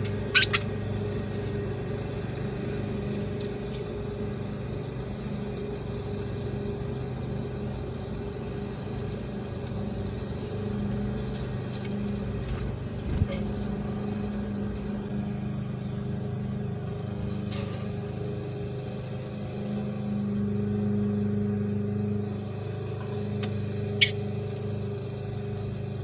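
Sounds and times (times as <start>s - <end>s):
low mechanical hum: 0.0s - 26.0s
high-pitched chirps: 0.3s - 1.6s, 2.9s - 4.0s, 5.6s - 5.8s, 7.6s - 11.7s, 24.0s - 26.0s.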